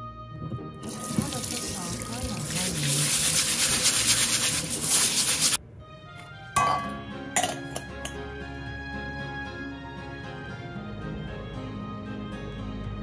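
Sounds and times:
soft background music: 0.0 - 13.0
tap water running onto rice: 0.8 - 5.6
metal strainer clinking on bowl: 6.6 - 8.2.

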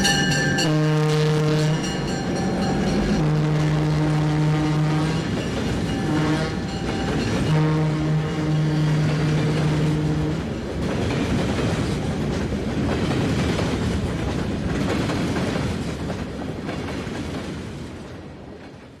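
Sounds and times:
train horn: 0.0 - 10.5
freight train wheels rumbling: 0.0 - 19.0.

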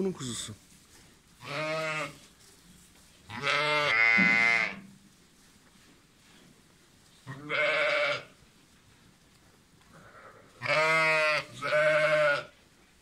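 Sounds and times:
sheep bleating: 1.4 - 2.2, 3.3 - 4.9, 7.3 - 8.3, 10.0 - 12.6.

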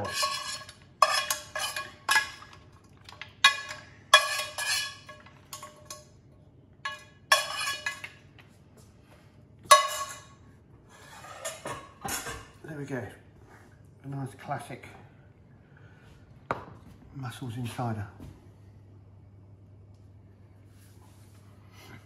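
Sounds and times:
metal spoon scraping pan: 0.0 - 2.6, 3.4 - 6.0, 6.8 - 8.1, 9.7 - 10.3, 10.9 - 12.4.

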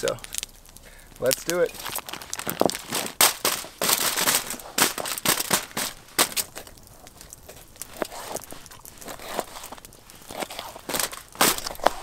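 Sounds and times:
foil and plastic bag crinkling: 0.0 - 12.0.

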